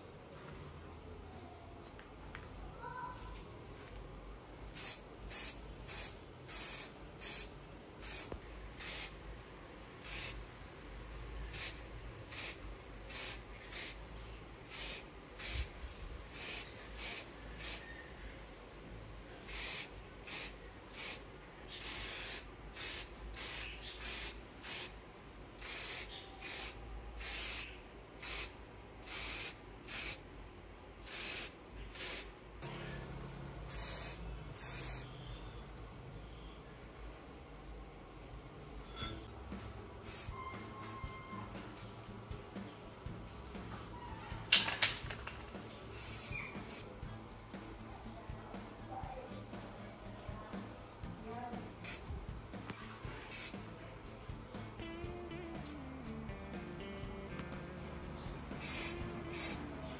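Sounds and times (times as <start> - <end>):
aerosol spray can hissing: 4.8 - 9.2, 10.0 - 10.4, 11.5 - 14.0, 14.7 - 15.7, 16.3 - 17.8, 19.5 - 25.0, 25.6 - 30.2, 31.0 - 32.3, 33.7 - 35.1, 45.9 - 46.8, 58.6 - 59.7.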